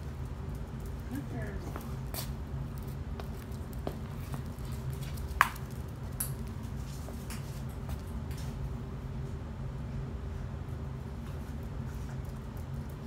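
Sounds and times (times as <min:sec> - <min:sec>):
steady low hum: 0:00.0 - 0:13.0
dog claws clicking on concrete: 0:00.2 - 0:06.5
footsteps on concrete: 0:01.2 - 0:08.6.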